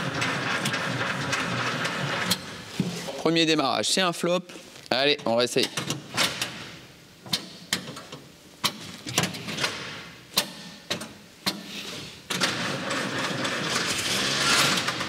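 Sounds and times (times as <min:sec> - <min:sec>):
sharp irregular clicks and knocks: 0:07.2 - 0:11.6
engine cranking on starter: 0:12.3 - 0:15.0.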